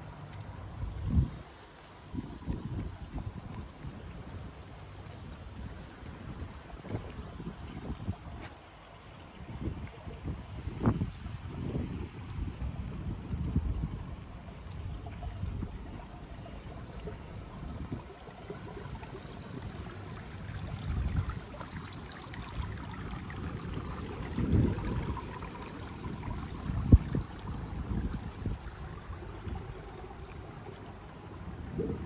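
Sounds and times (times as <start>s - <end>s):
flowing water: 0.0s - 32.0s
wind rumbling on microphone: 0.0s - 32.0s.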